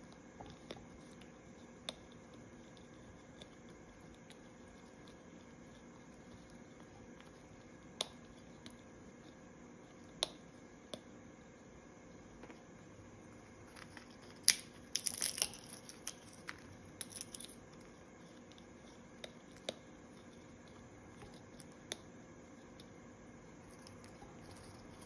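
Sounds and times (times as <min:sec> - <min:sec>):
food crunching and crackling: 0:12.4 - 0:25.0.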